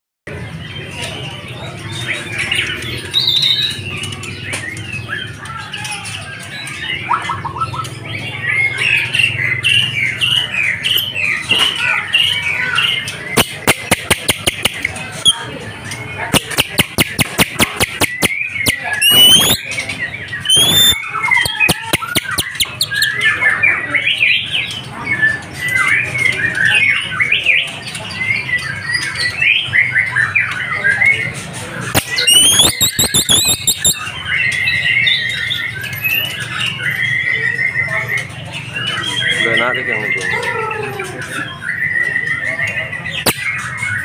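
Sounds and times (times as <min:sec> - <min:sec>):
bird rapid clicking: 0:13.4 - 0:15.0, 0:16.3 - 0:19.6, 0:20.5 - 0:23.2, 0:31.9 - 0:34.0
bird singing whistled phrases: 0:13.4 - 0:15.6, 0:16.3 - 0:24.2, 0:32.0 - 0:38.0.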